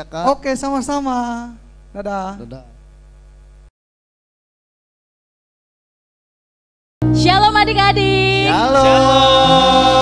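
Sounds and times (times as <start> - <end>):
low electrical mains hum: 0.0 - 3.7.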